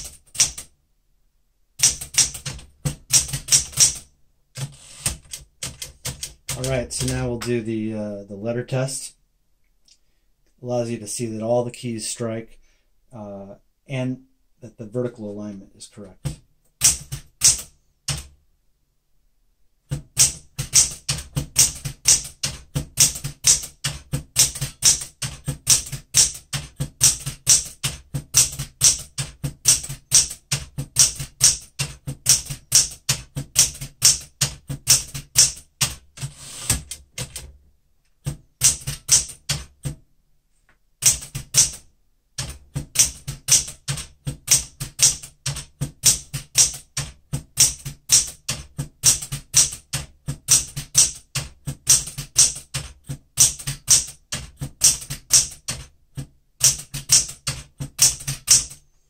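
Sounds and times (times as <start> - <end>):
manual typewriter typing: 0.0 - 0.7, 1.8 - 7.6, 16.2 - 18.3, 19.9 - 37.6, 38.2 - 40.0, 41.0 - 41.8, 42.4 - 58.8.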